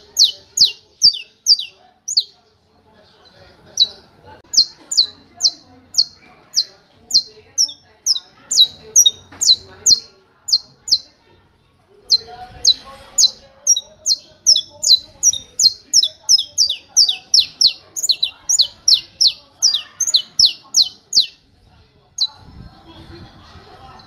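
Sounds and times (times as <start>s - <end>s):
finch singing sharp high notes: 0.0s - 2.3s, 12.1s - 21.4s.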